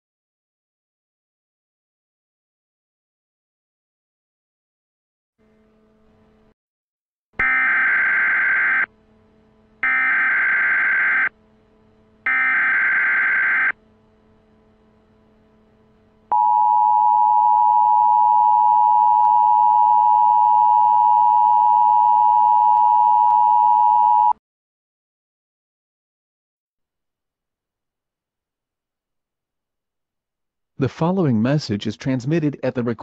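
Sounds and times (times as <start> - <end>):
digital data tone bursts: 12.3 - 13.8.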